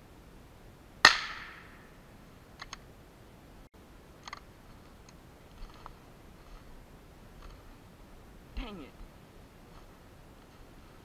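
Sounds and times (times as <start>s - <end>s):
rifle shot: 1.0s - 1.8s.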